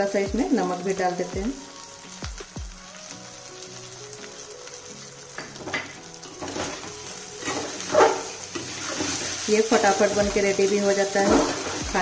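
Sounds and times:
rice and spices sizzling: 0.0 - 12.0
metal spatula scraping pan: 5.7 - 12.0.

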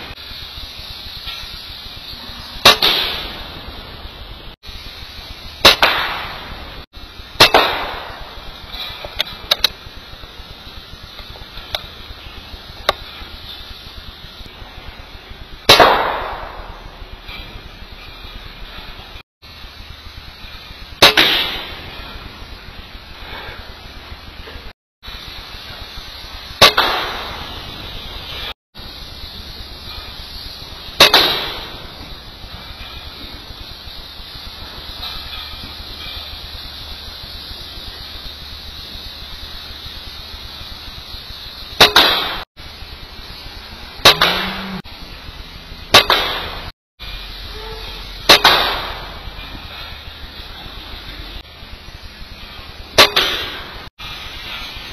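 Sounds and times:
faint steady hiss: 0.0 - 54.9
air rifle shots: 2.6 - 3.6, 5.6 - 6.8, 7.4 - 8.6, 15.7 - 16.8, 26.6 - 27.6, 31.0 - 31.8, 48.3 - 49.2.

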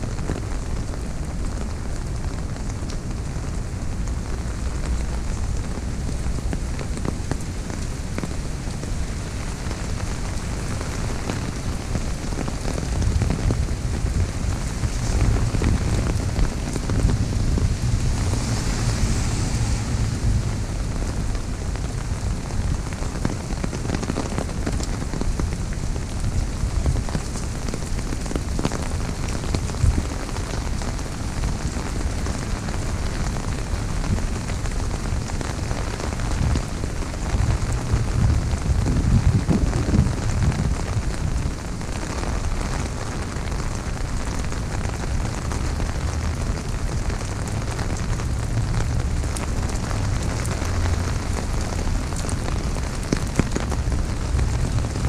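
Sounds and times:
heavy rain on an umbrella: 0.0 - 55.0
low rumble: 13.0 - 23.0.

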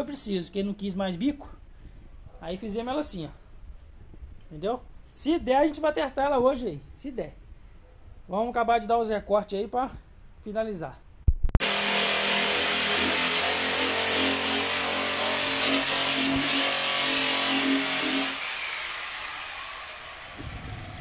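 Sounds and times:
angle grinder grinding plastic: 11.6 - 21.0
grinder winding down: 11.6 - 21.0.

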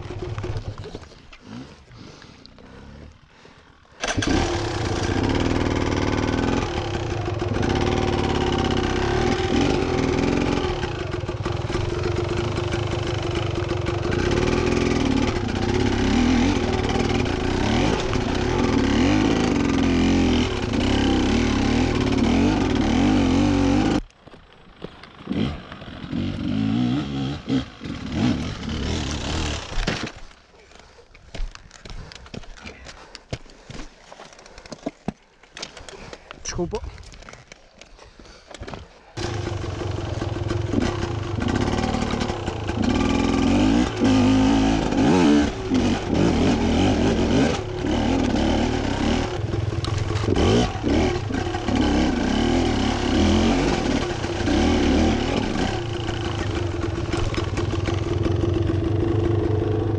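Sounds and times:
motorcycle engine revving: 4.0 - 24.0, 25.1 - 29.8, 39.2 - 59.9.

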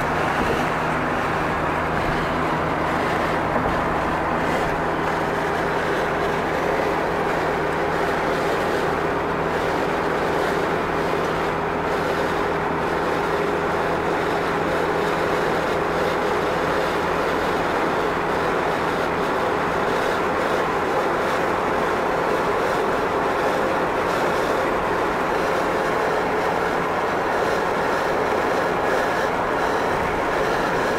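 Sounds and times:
constant low hum: 0.0 - 16.6
vehicle running: 0.0 - 30.9.

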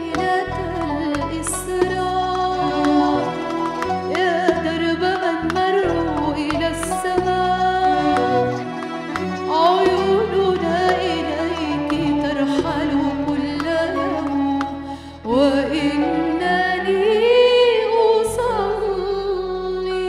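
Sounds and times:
instrumental accompaniment: 0.0 - 20.0
woman singing hymn: 4.1 - 8.6, 9.5 - 20.0.

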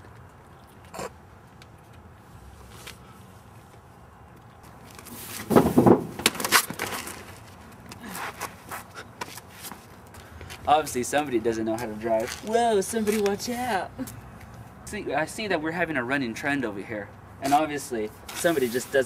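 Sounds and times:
thumps and scuffling: 4.6 - 10.6.

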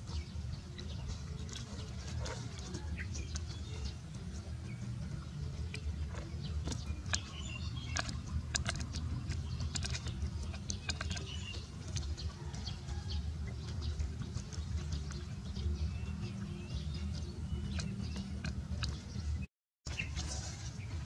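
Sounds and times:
low steady rumble: 0.0 - 21.0
puppy gnawing a wooden stick: 5.6 - 19.2.

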